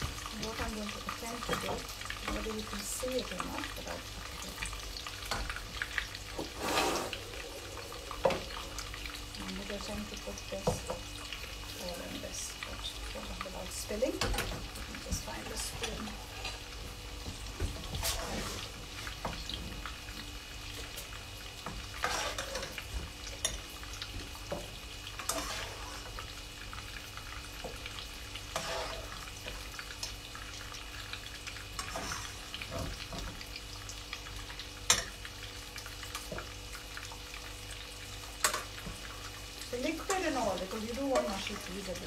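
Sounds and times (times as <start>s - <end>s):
fish sizzling in hot oil: 0.0s - 42.0s.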